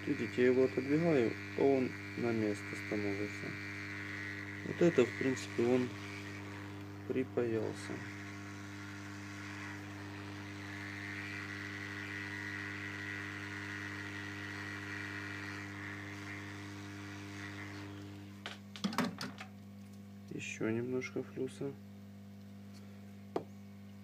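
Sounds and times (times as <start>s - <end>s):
hot air blower hissing: 0.0s - 18.4s.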